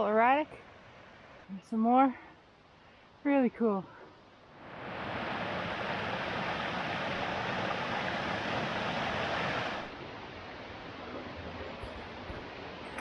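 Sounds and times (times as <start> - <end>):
quiet outdoor background: 0.0 - 13.0
brook water rushing: 4.5 - 12.8.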